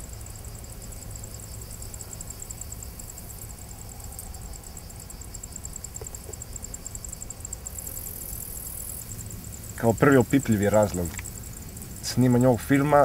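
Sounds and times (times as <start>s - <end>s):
insects chirping: 0.0s - 13.0s
low steady rumble: 0.0s - 13.0s.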